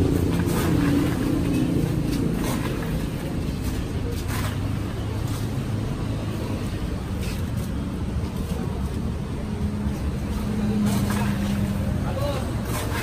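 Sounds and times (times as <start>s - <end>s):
engine hum: 0.0s - 13.0s
street traffic rumble: 0.0s - 13.0s.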